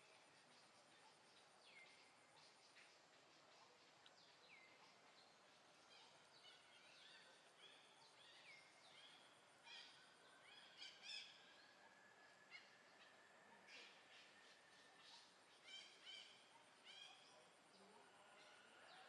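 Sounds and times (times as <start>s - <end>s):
wild birds chirping and whistling: 0.0s - 19.0s.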